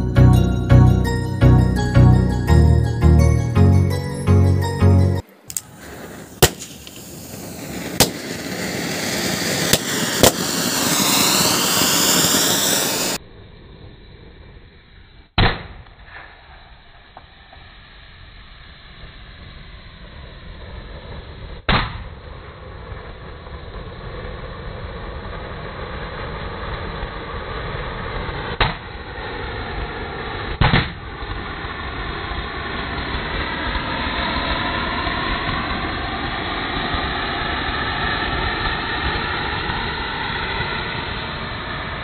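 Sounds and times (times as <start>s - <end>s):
firework hissing and whistling: 5.3s - 42.0s
balloon bursting: 5.5s - 13.2s
sharp bangs: 5.5s - 13.2s.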